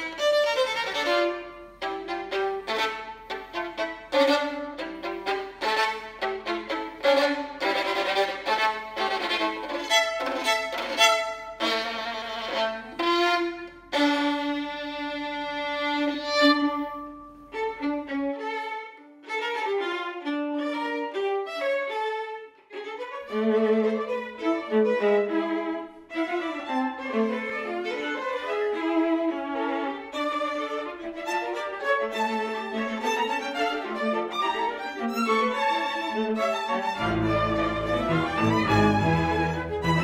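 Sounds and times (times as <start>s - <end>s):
solo violin playing: 0.0s - 40.0s
lower strings playing: 36.9s - 40.0s.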